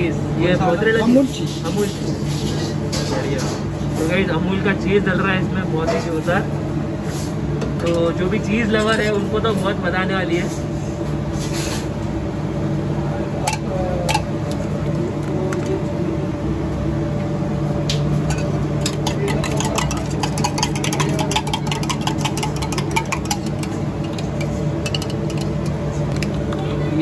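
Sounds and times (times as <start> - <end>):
low mechanical hum: 0.0 - 27.0
spoon clinking against steel tumbler: 18.3 - 26.4.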